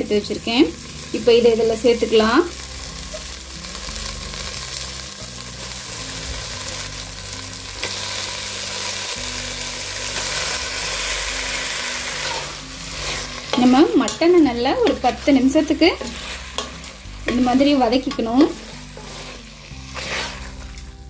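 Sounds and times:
meat sizzling in oil: 0:00.0 - 0:21.0
wooden spatula stirring: 0:12.9 - 0:21.0.

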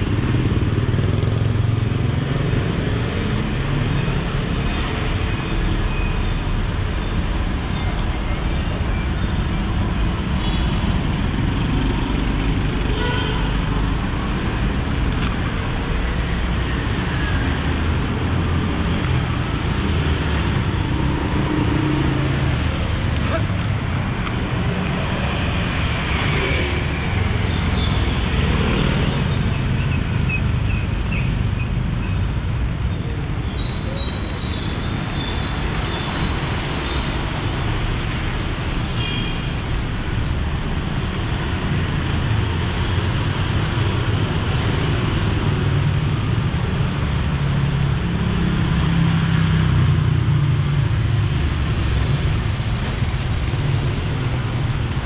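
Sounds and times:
passing vehicle engines and tyres: 0:00.0 - 0:55.0.

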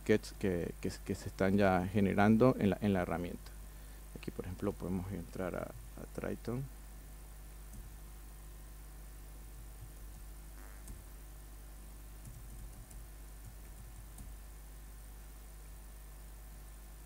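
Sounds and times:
low electrical hum: 0:00.0 - 0:17.0
typing on laptop keyboard: 0:12.2 - 0:14.3.

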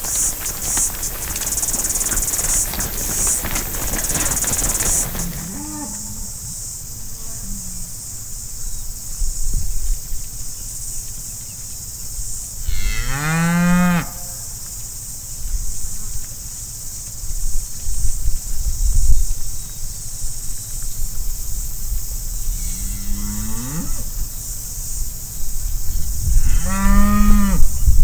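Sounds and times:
cow mooing: 0:05.4 - 0:06.4.

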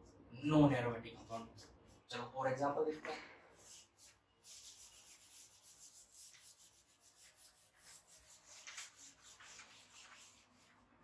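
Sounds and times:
duster rubbing whiteboard: 0:03.6 - 0:10.9.

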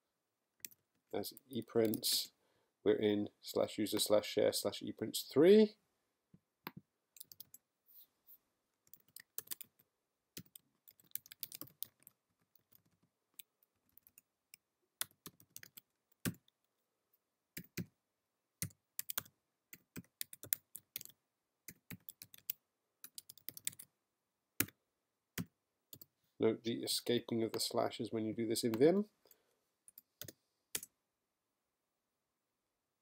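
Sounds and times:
computer keyboard typing: 0:07.2 - 0:07.6, 0:08.9 - 0:09.8, 0:10.4 - 0:16.6, 0:18.6 - 0:23.9.

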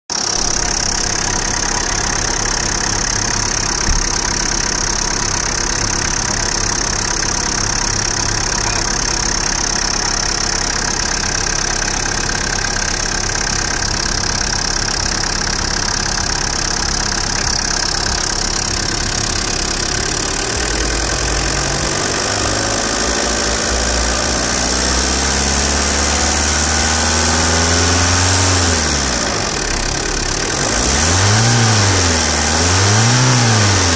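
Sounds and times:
diesel engine idling: 0:00.1 - 0:33.9.

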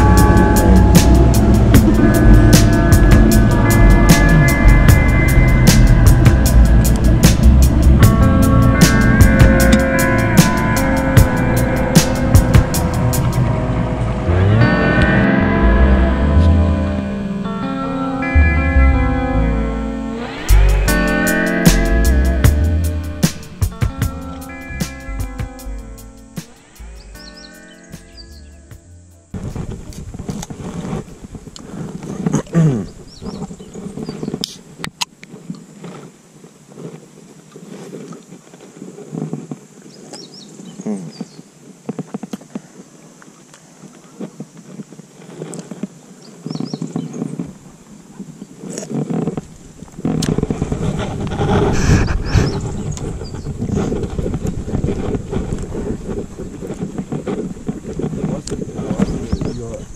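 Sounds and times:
wind buffeting microphone: 0:00.0 - 0:19.6, 0:20.4 - 0:59.9
clothing rubbing on microphone: 0:29.4 - 0:42.8, 0:43.8 - 0:59.9.

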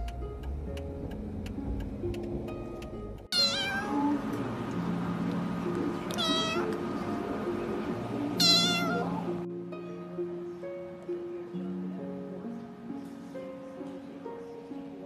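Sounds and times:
kitten meowing: 0:03.3 - 0:04.2, 0:06.1 - 0:06.8, 0:08.4 - 0:09.2.

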